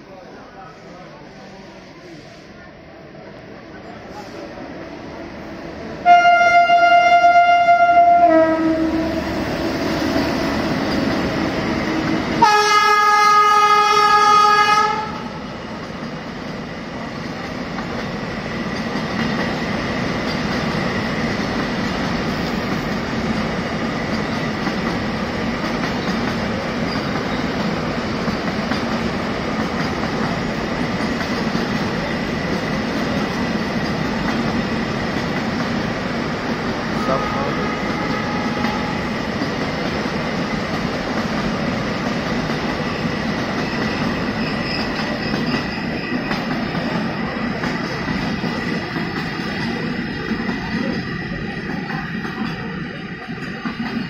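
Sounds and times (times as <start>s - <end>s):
train wheels rumbling on rail: 0.0s - 54.0s
locomotive horn blasts: 6.0s - 9.1s, 12.4s - 15.3s, 37.0s - 39.1s.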